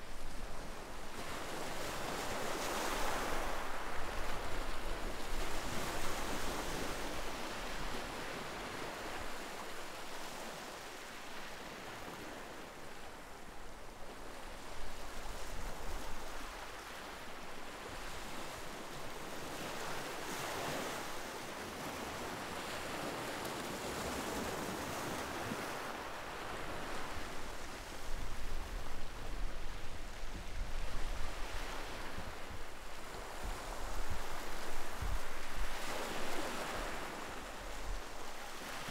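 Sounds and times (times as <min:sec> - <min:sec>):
wind rumble on microphone: 0:23.8 - 0:38.9.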